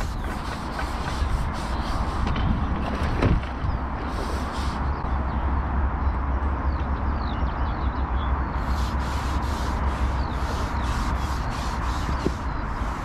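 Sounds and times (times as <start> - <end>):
wind rumbling on microphone: 0.0 - 13.0
small birds chirping: 3.5 - 13.0.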